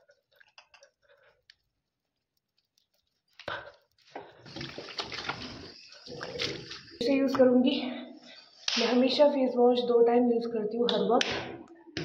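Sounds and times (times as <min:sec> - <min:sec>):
tap water running into sink: 0:04.2 - 0:07.5.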